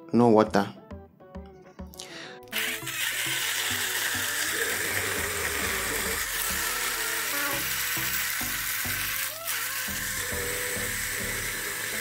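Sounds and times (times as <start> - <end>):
blender motor running: 2.5 - 12.0.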